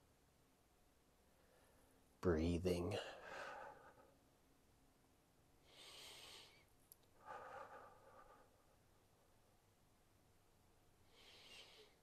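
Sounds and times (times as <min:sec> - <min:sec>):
man breathing softly: 0:01.3 - 0:02.1, 0:02.9 - 0:04.3, 0:05.6 - 0:08.9, 0:11.0 - 0:12.0
faint click: 0:06.8 - 0:07.2.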